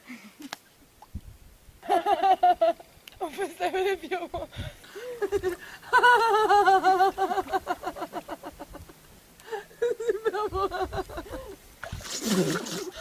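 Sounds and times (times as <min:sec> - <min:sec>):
woman laughing high-pitched: 0:01.8 - 0:08.8, 0:09.5 - 0:11.6.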